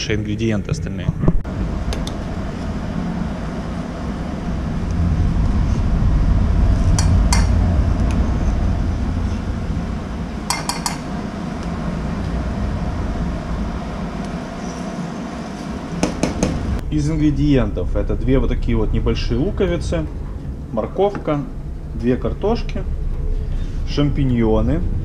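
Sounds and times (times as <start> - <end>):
low rumble: 1.1 - 25.0.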